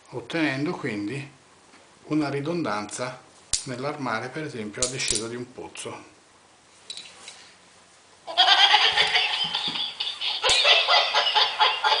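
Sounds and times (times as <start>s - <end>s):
toy dog recorded laughter: 8.3s - 9.7s, 10.3s - 12.0s.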